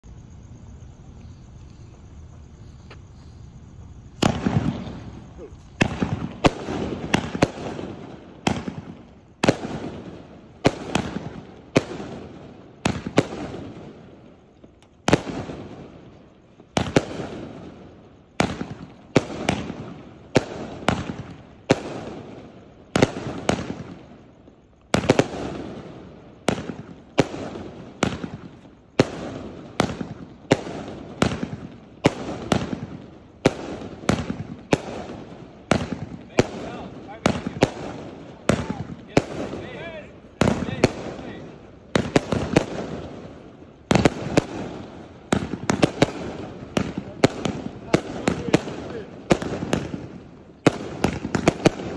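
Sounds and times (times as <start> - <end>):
fireworks firing sharp shots: 4.0 - 51.9.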